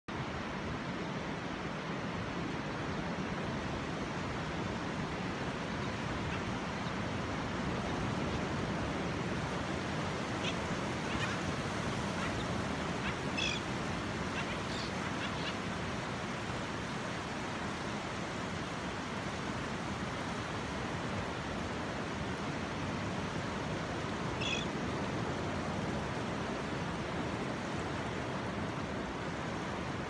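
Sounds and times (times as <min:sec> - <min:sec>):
ocean surf: 0:00.1 - 0:30.0
shorebirds calling: 0:10.3 - 0:15.8, 0:24.3 - 0:24.8.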